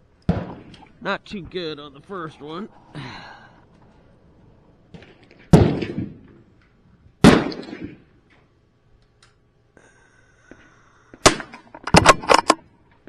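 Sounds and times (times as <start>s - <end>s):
rifle shots with echo: 0.3s - 0.8s, 4.9s - 6.4s, 7.2s - 8.2s, 11.2s - 11.5s.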